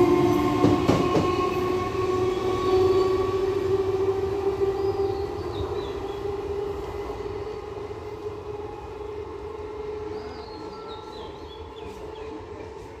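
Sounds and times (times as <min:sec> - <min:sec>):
electric train humming and rumbling: 0:00.0 - 0:13.0.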